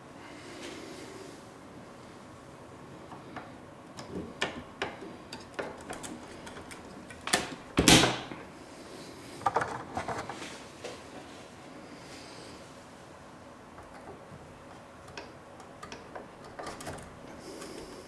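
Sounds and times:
small clicks and knocks: 3.1s - 7.6s, 13.8s - 17.9s.

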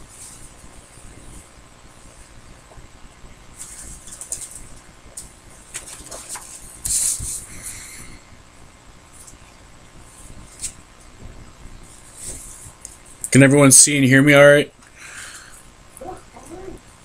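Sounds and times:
paper rustling: 5.6s - 7.5s.

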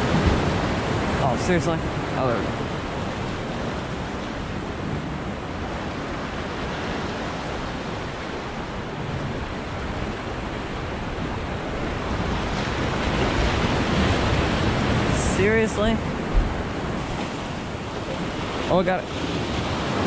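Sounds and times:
surf breaking on rocks: 0.0s - 4.5s, 9.3s - 20.0s
wind on microphone: 0.0s - 20.0s.

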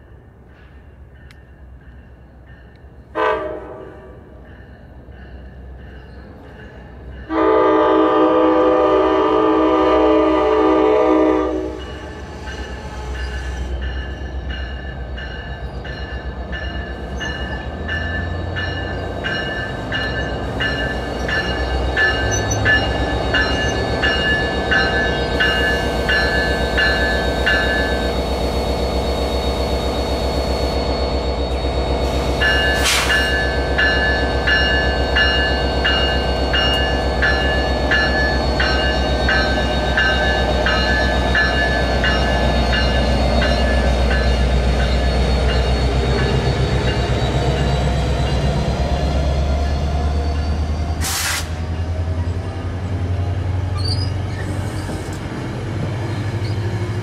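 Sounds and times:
locomotive bell ringing: 11.7s - 50.9s
air hiss: 32.1s - 33.4s, 51.0s - 51.6s.

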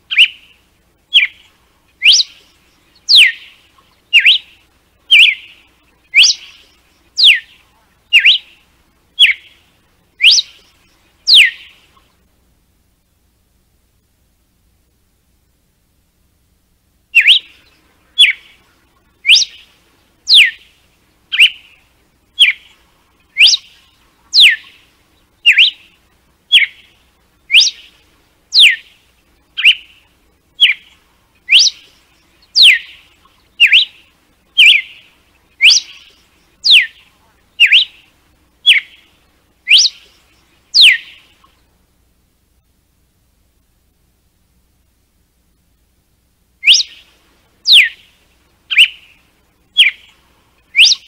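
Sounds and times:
bird whistling sharp notes: 0.1s - 7.5s, 8.1s - 8.6s, 9.2s - 9.6s, 10.2s - 10.7s, 11.3s - 11.8s, 17.2s - 18.6s, 19.2s - 19.7s, 20.3s - 20.7s, 21.3s - 21.8s, 22.4s - 22.7s, 23.3s - 23.8s, 24.4s - 24.8s, 25.4s - 25.9s, 26.5s - 26.9s, 27.5s - 27.9s, 28.5s - 28.9s, 29.6s - 30.0s, 30.6s - 30.9s, 31.5s - 33.0s, 33.6s - 34.0s, 34.6s - 37.0s, 37.6s - 38.0s, 38.6s - 39.0s, 39.7s - 40.2s, 40.8s - 41.3s, 46.6s - 47.1s, 47.7s - 48.1s, 48.7s - 49.2s, 49.8s - 50.1s, 50.7s - 51.0s.

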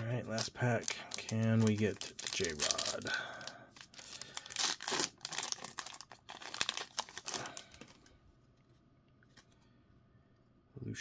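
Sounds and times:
plastic wrapper tearing and crinkling: 0.0s - 8.1s.

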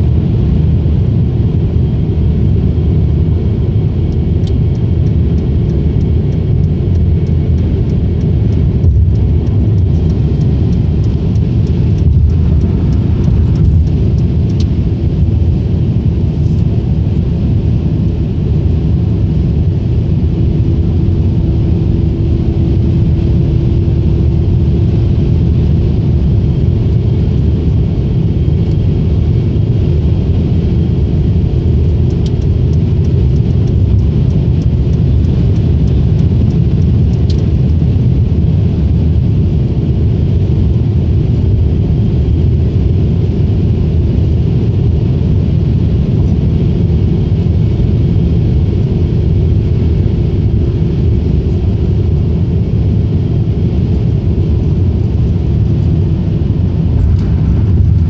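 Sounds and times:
car cruising interior rumble: 0.0s - 58.0s.

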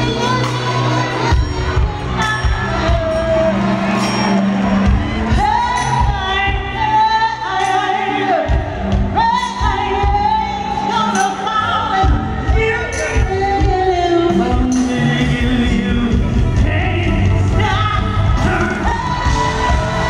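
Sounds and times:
bass: 0.0s - 20.0s
drums: 0.0s - 20.0s
woman singing: 0.0s - 20.0s.

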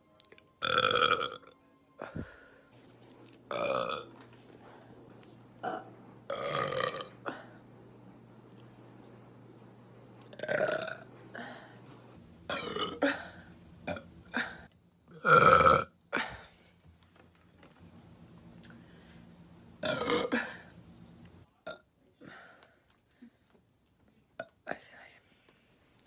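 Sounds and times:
woman burping: 0.6s - 2.2s, 3.5s - 4.2s, 5.6s - 7.5s, 10.3s - 11.1s, 12.5s - 16.4s, 19.8s - 20.7s.

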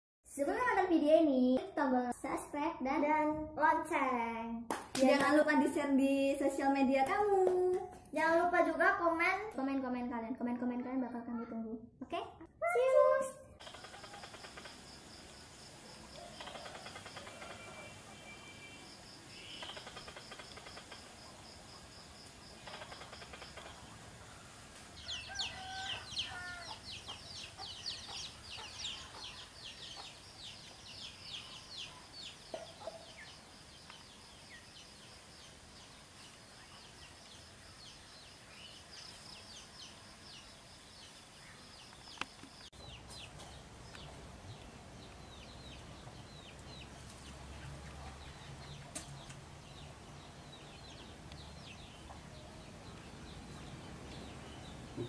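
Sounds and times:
high chirping calls: 12.6s - 24.0s, 25.0s - 55.0s.

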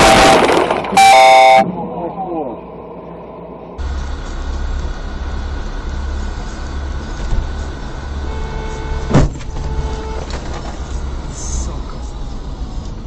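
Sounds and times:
car horn: 0.0s - 1.7s, 8.2s - 10.4s
car road and engine rumble: 0.0s - 13.0s
loud thump: 9.0s - 9.8s.

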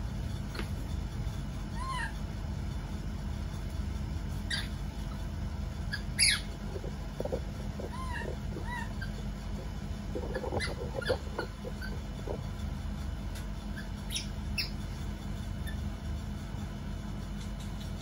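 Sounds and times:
steady low rumble: 0.0s - 18.0s
baby monkeys squeaking: 1.7s - 2.2s, 4.3s - 16.4s, 17.1s - 18.0s.

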